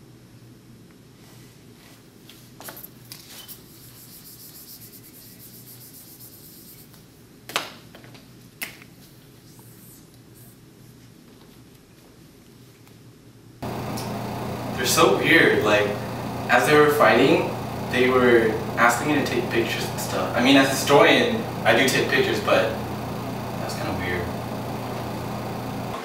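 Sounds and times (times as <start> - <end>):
rubbing and scratching on whiteboard: 3.3 - 6.9.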